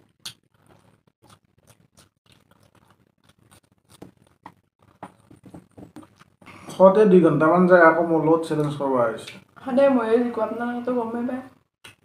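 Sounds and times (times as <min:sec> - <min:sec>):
chewing smacks: 0:00.0 - 0:06.8.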